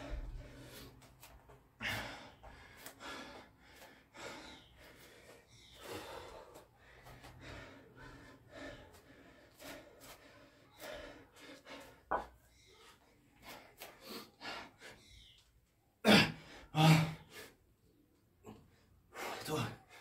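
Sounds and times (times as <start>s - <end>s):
person breathing hard and gasping: 0.0s - 15.2s.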